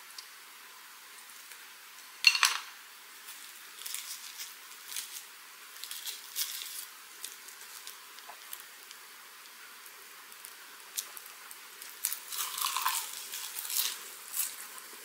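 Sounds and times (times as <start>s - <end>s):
dried seaweed wrap crinkling: 3.2s - 14.9s.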